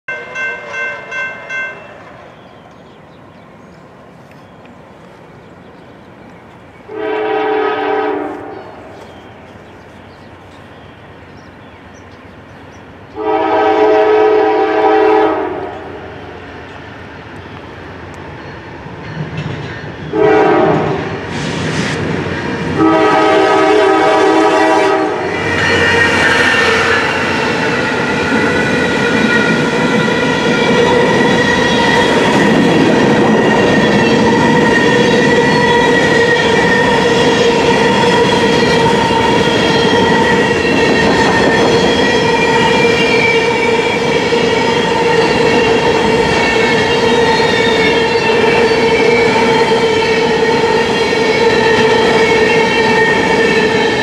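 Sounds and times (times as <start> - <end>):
train rolling past: 0.1 - 54.0
locomotive air horn: 6.9 - 8.8, 13.2 - 16.0, 20.1 - 21.2, 22.8 - 27.4.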